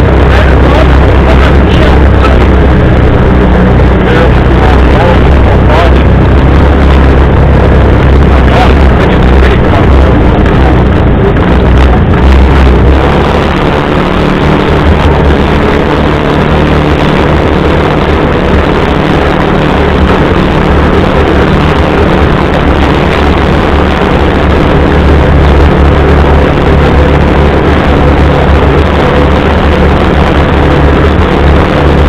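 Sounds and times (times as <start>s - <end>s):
engine droning: 0.0s - 32.0s
rattle and road noise: 0.0s - 32.0s.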